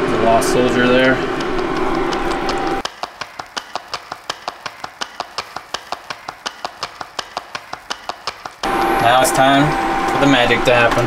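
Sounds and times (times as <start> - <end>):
spatula tapping in a metal pot: 1.4 - 8.6.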